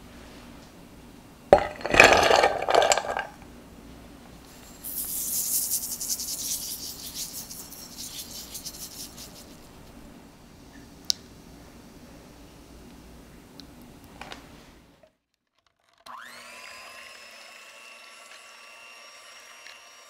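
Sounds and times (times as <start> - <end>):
glass bowls clinking: 1.6 - 3.4
sugar pouring hiss: 4.5 - 9.9.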